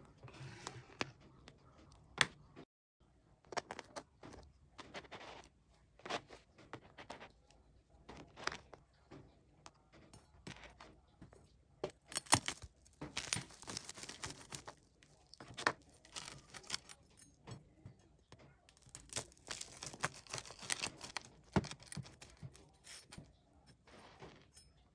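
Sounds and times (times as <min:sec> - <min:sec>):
knife crunching through toast: 0:12.1 - 0:17.0, 0:18.7 - 0:23.2.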